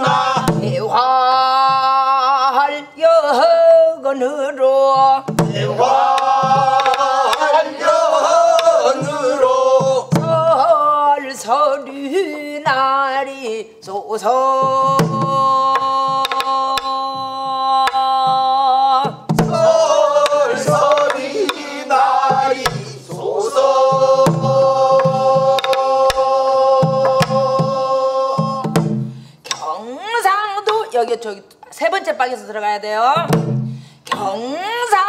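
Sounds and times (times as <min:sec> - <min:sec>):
barrel drum struck with stick: 0:00.0 - 0:00.9, 0:05.2 - 0:10.4, 0:19.1 - 0:29.6, 0:33.2 - 0:34.2
person singing folk song: 0:00.0 - 0:30.9.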